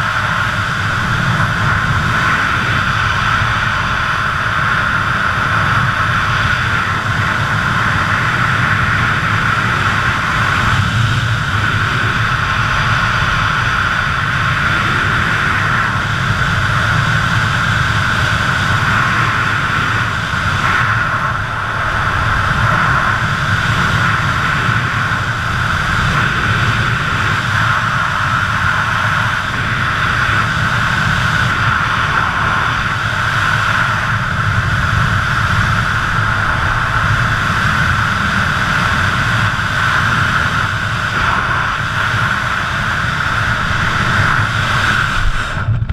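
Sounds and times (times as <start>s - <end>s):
wind rushing over microphone: 0.0s - 45.9s.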